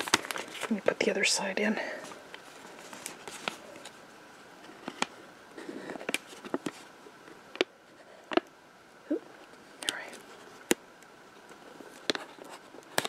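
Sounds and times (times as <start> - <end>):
paper rustling: 0.0 - 0.8, 2.0 - 4.0.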